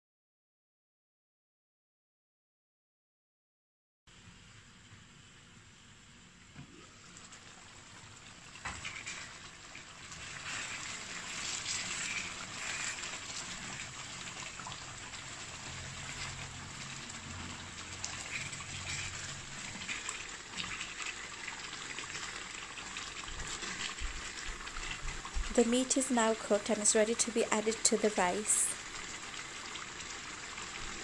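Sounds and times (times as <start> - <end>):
curry bubbling in a pot: 6.2 - 28.2, 28.8 - 31.0
wooden spoon stirring: 10.1 - 14.6, 17.8 - 27.0.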